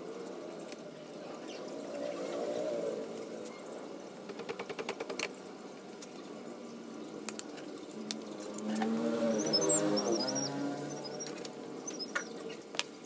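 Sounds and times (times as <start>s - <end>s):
high bird chirps: 8.4s - 12.6s.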